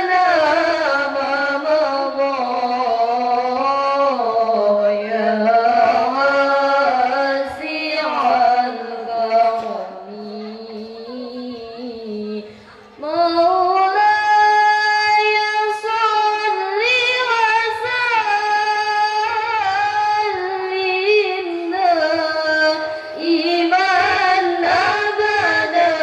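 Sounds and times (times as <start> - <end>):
women singing devotional song: 0.0 - 26.0.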